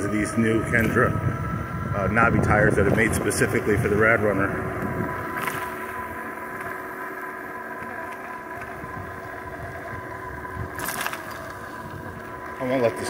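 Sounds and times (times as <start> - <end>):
wind rumble on microphone: 0.0 - 6.8, 7.8 - 13.0
electric bike motor whining: 0.0 - 13.0.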